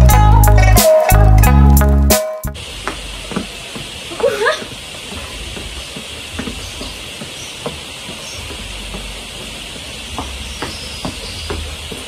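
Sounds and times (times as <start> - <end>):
steady hiss: 2.5 - 12.0
sneakers landing on concrete: 2.6 - 12.0.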